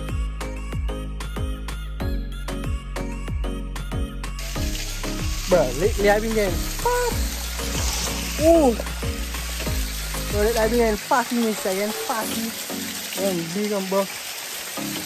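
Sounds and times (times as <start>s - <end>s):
deep sliding bass beat: 4.0s - 11.0s
small waterfall rushing: 4.4s - 15.0s.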